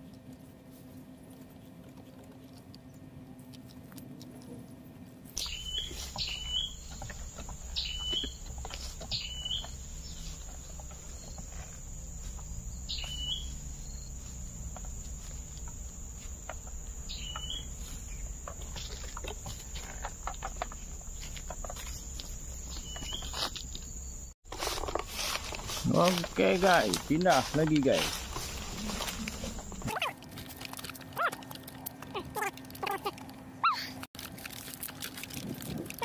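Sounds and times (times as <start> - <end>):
steps in dry undergrowth: 5.2 - 32.9, 34.1 - 36.0
low rumble: 5.5 - 24.3.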